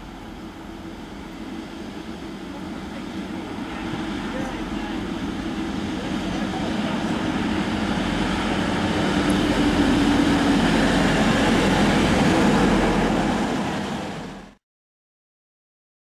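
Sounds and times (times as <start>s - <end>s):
train coaches rolling by: 0.0s - 14.6s.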